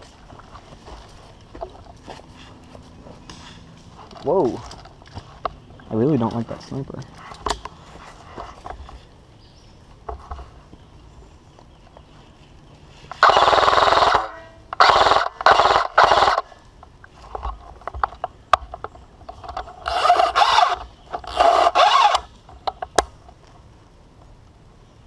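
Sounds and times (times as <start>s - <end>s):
airsoft rifle automatic bursts: 13.2s - 16.4s.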